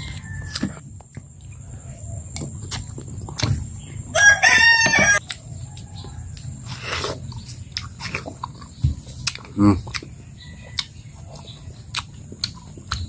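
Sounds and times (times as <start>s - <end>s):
rooster crowing: 0.0s - 0.6s, 4.1s - 6.3s
person eating mouth noises: 6.4s - 10.2s.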